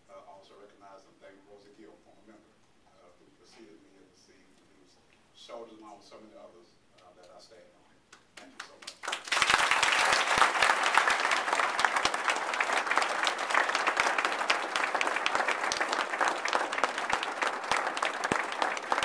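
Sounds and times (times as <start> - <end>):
audience applauding: 8.4 - 19.0.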